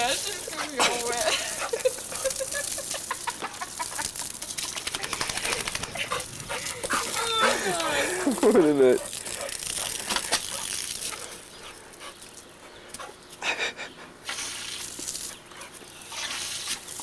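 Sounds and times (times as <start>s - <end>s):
water spraying from hose: 0.0s - 12.6s, 13.4s - 17.0s
dog panting: 5.0s - 14.2s.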